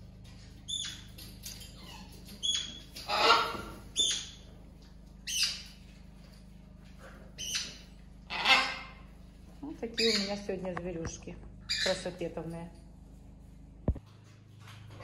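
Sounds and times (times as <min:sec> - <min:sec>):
parrots squawking and screeching: 0:00.7 - 0:04.4, 0:05.2 - 0:05.8, 0:07.3 - 0:09.1, 0:10.0 - 0:10.4, 0:11.7 - 0:12.1.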